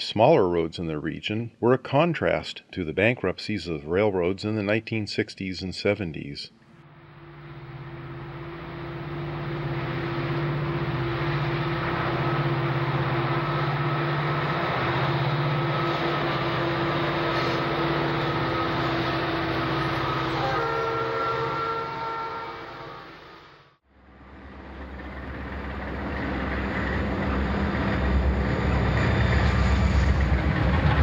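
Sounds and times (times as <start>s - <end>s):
locomotive engine drone: 6.7s - 31.0s
freight cars rumbling on rails: 6.9s - 31.0s.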